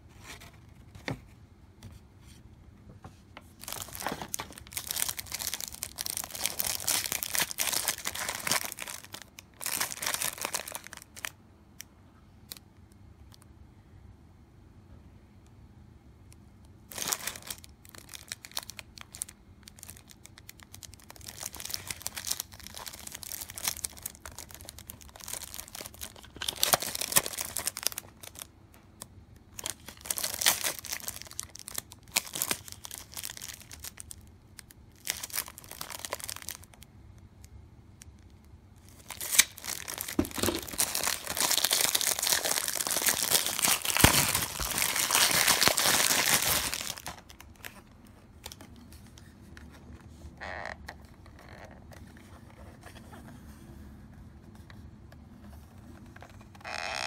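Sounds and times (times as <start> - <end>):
plastic packaging crinkling: 3.4 - 11.4, 16.9 - 28.5, 29.4 - 36.9, 38.0 - 52.1.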